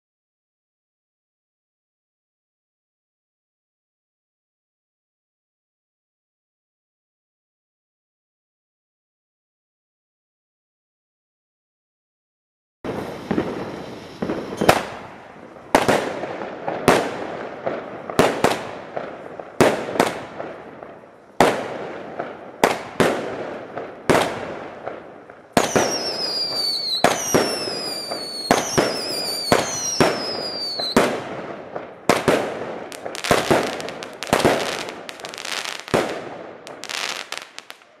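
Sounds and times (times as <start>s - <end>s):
falling firework whistle: 12.9s - 16.0s, 25.5s - 31.2s, 32.9s - 38.0s
firework shots and bursts: 12.9s - 38.0s.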